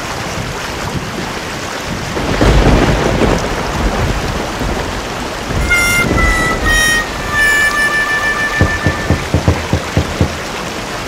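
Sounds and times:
heavy rain falling: 0:00.0 - 0:11.0
low rumble of thunder: 0:01.9 - 0:05.7.

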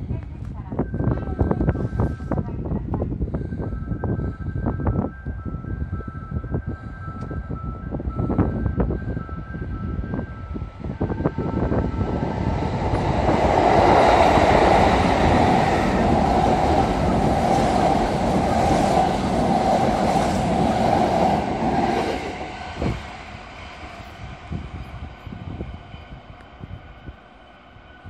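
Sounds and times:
electric train passing: 0:07.4 - 0:28.0.

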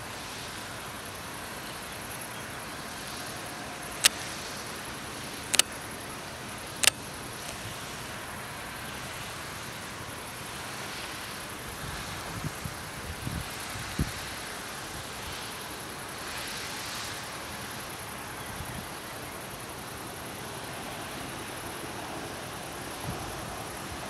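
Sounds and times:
outdoor background hiss: 0:00.0 - 0:24.0
sharp clicks: 0:04.0 - 0:04.2, 0:05.5 - 0:05.8, 0:06.7 - 0:07.6.

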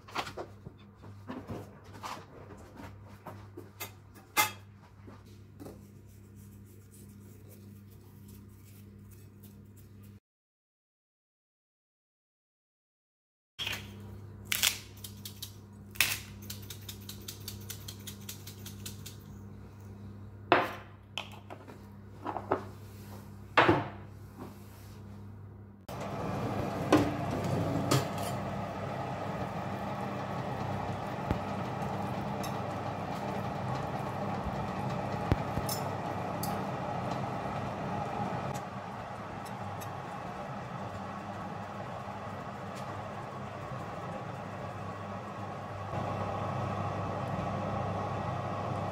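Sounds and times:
low steady hum: 0:24.1 - 0:48.9
oven fan running: 0:24.1 - 0:48.9.

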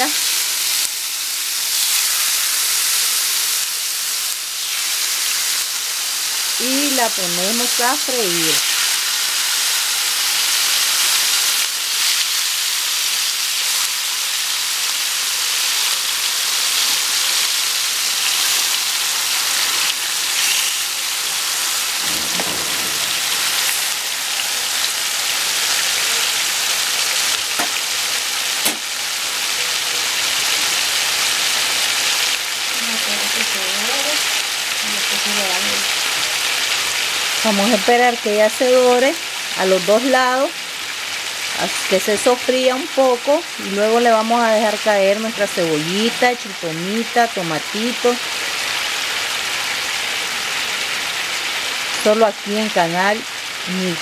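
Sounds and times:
meat sizzling in oil: 0:00.0 - 0:54.0
meat knocking in pan: 0:27.5 - 0:27.8, 0:28.6 - 0:28.9.

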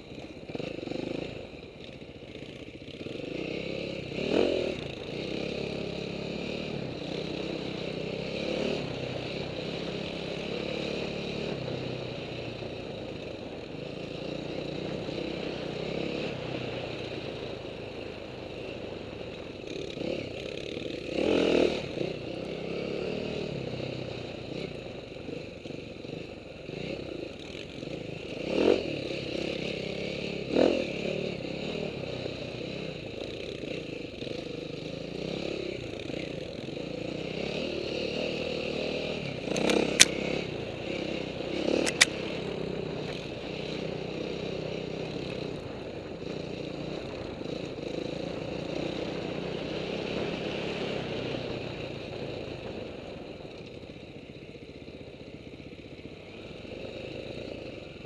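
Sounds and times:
dirt bike engine revving: 0:02.4 - 0:11.6, 0:19.7 - 0:23.6, 0:28.2 - 0:31.9, 0:37.0 - 0:46.4
sharp cracks: 0:39.5 - 0:40.2, 0:41.8 - 0:42.2.

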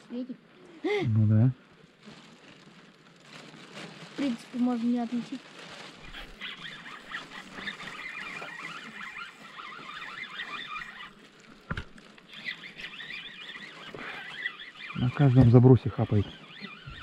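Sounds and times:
flock of birds calling: 0:06.0 - 0:11.2, 0:12.3 - 0:17.0.

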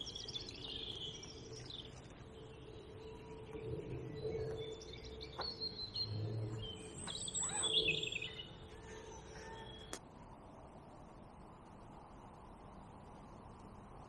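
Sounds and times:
wild birds chirping and whistling: 0:00.0 - 0:10.0.

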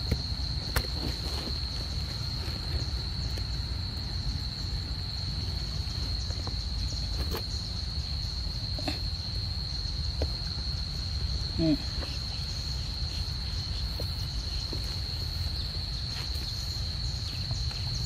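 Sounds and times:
insects droning: 0:00.0 - 0:18.0.

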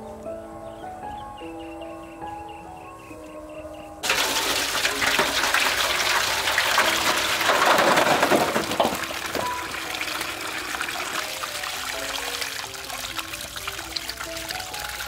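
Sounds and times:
water running and splashing: 0:04.0 - 0:15.0.

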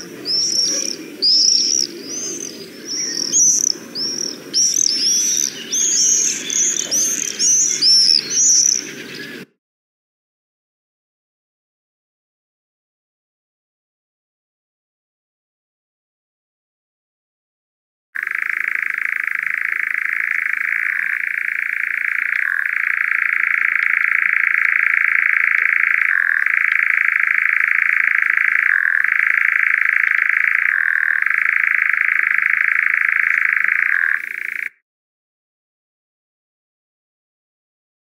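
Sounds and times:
nightjar churring trill: 0:00.0 - 0:09.4, 0:18.2 - 0:34.8.

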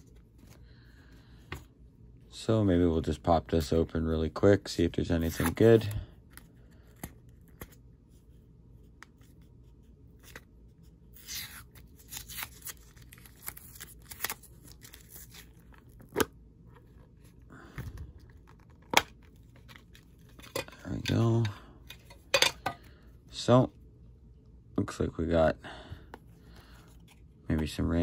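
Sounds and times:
tape peeling and tearing: 0:11.1 - 0:15.6.

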